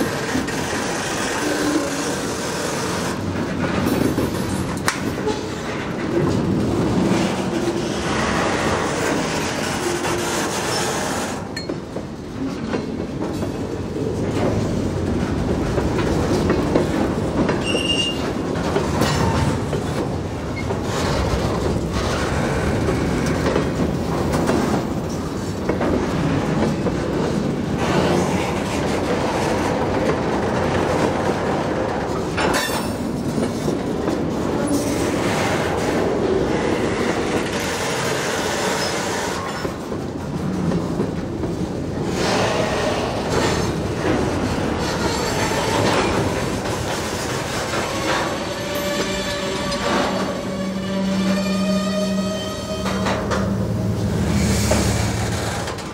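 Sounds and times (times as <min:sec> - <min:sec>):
train wheels rumbling on rails: 0:00.0 - 0:55.9
wheel squeal: 0:17.6 - 0:18.3, 0:48.0 - 0:53.7.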